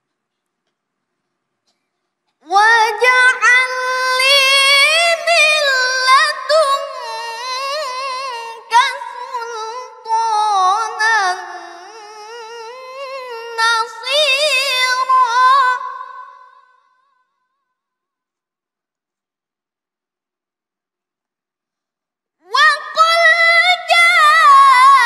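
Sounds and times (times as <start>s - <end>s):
boy reciting melodically: 2.4s - 16.8s, 22.4s - 25.0s.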